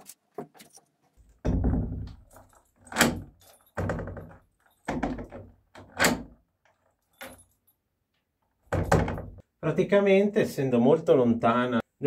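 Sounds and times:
lock bolt clacking: 0:02.0 - 0:07.5
key turning in lock: 0:02.1 - 0:07.6.

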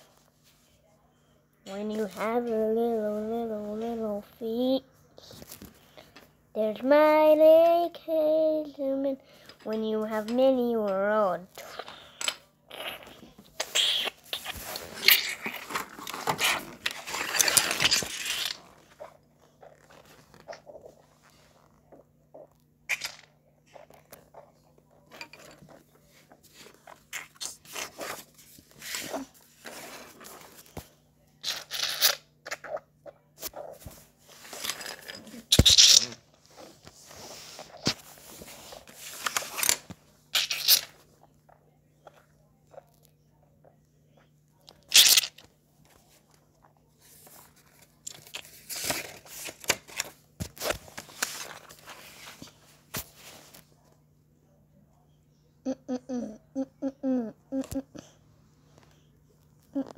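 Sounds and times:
paper rustling and scraping: 0:14.4 - 0:19.0, 0:33.8 - 0:39.9, 0:47.1 - 0:53.7.

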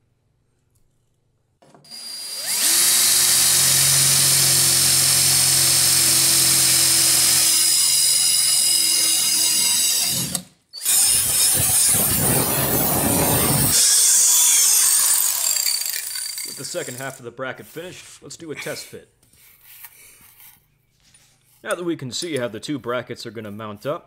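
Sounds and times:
angle grinder cutting steel: 0:01.9 - 0:17.2
electric drill boring through steel: 0:01.9 - 0:17.2.

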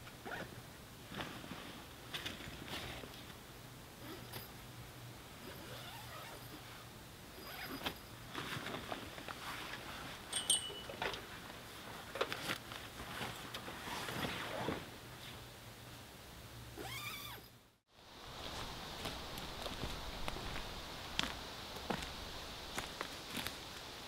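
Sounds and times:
pack and fabric rustling: 0:07.4 - 0:14.9
short metallic ring: 0:10.3 - 0:11.0
clicks and light clinks: 0:10.3 - 0:11.2.

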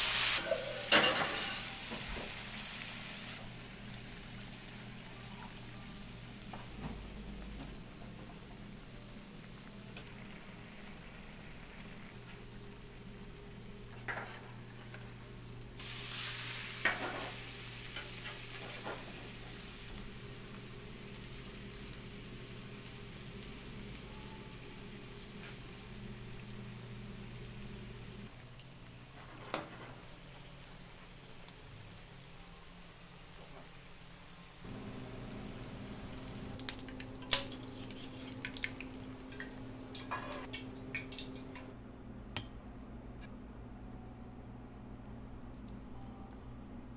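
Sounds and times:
potato sizzling in a pan: 0:00.0 - 0:06.3, 0:15.8 - 0:28.0, 0:34.5 - 0:41.4
low steady hum: 0:03.4 - 0:33.3, 0:34.1 - 0:46.9.

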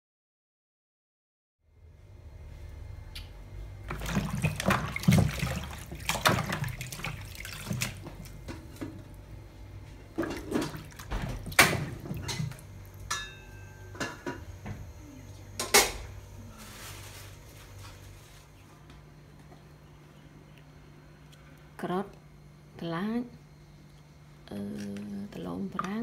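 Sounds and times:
water splash: 0:03.9 - 0:08.4, 0:10.2 - 0:12.6
vegetables sloshing in water: 0:03.9 - 0:09.1, 0:10.1 - 0:12.6.

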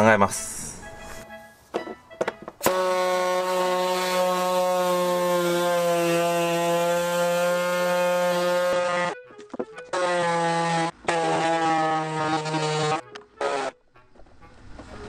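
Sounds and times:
power cutter cutting plastic: 0:02.6 - 0:09.2, 0:09.8 - 0:13.8.

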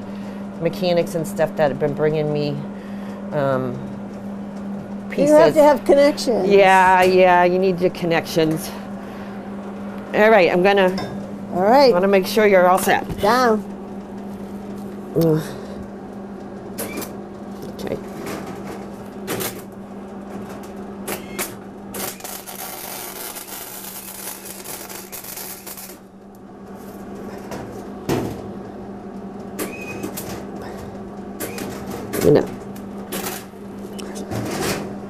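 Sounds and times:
constant low hum: 0:00.0 - 0:35.0
welder arc crackling: 0:22.0 - 0:26.0.

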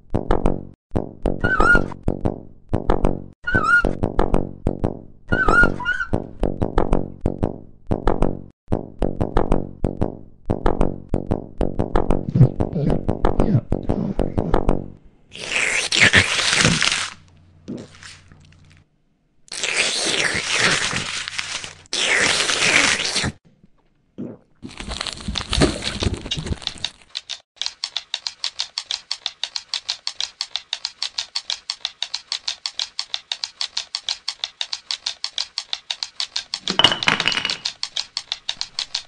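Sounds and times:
crunching tearing noises: 0:15.3 - 0:18.9, 0:19.5 - 0:23.4, 0:24.6 - 0:27.8
fast even clicking: 0:26.6 - 0:36.7, 0:37.6 - 0:39.0.

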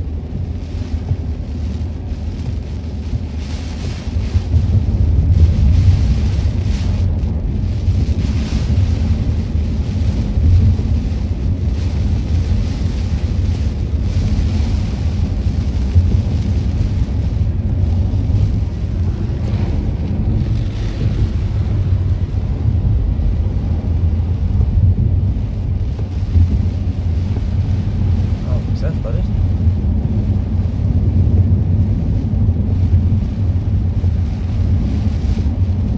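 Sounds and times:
heavy rain on car: 0:00.0 - 0:35.9
tyres on wet road: 0:00.0 - 0:35.9
wind buffeting car: 0:00.0 - 0:35.9.

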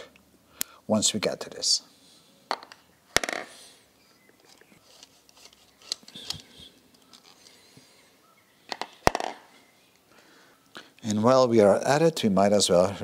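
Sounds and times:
metallic clicks and rubs: 0:04.4 - 0:07.7.

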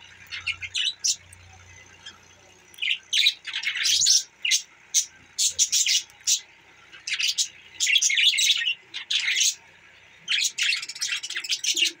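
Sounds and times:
budgerigars chirping: 0:00.3 - 0:01.3, 0:01.9 - 0:12.0.

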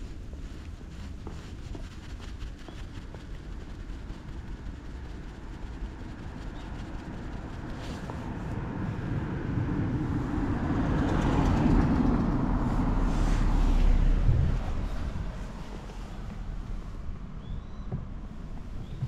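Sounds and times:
car driving past: 0:07.8 - 0:19.0.

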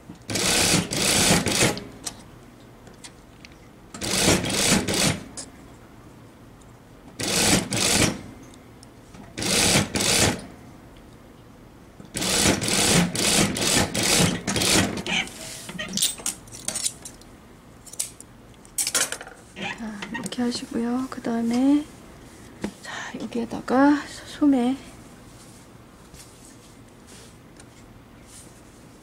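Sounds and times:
industrial sewing machine stitching: 0:00.3 - 0:01.8, 0:04.0 - 0:05.3, 0:07.2 - 0:08.2, 0:09.4 - 0:10.4, 0:12.2 - 0:15.1.

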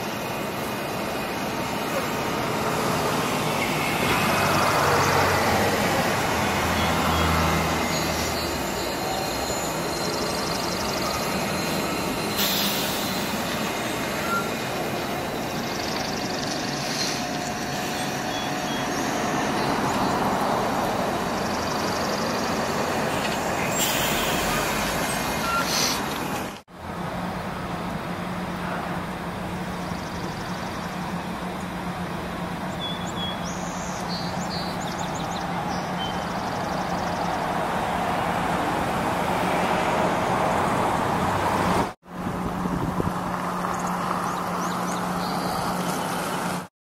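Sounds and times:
road traffic passing: 0:00.0 - 0:46.7
loud hisses: 0:08.0 - 0:15.7, 0:22.5 - 0:26.1.

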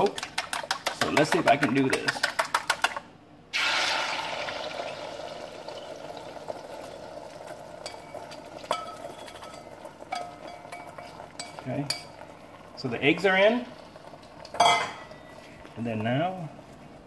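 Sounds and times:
eggs sizzling in hot oil: 0:03.5 - 0:16.0.

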